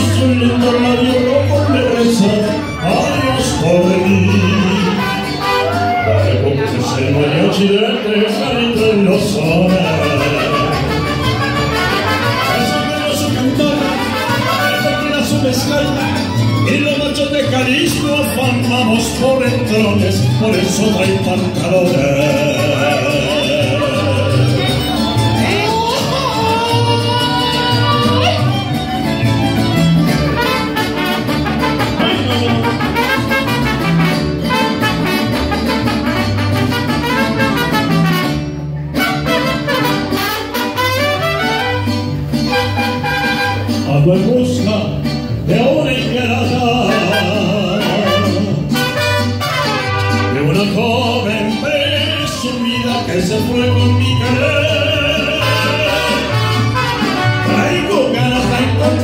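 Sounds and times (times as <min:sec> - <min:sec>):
person singing: 0:00.0 - 0:11.0, 0:12.1 - 0:28.6, 0:50.2 - 0:56.6
bass line: 0:00.0 - 0:59.0
strummed guitars: 0:00.0 - 0:59.0
trumpets playing melody: 0:04.1 - 0:06.2, 0:09.8 - 0:15.6, 0:30.1 - 0:43.9, 0:46.8 - 0:50.7, 0:55.2 - 0:58.0.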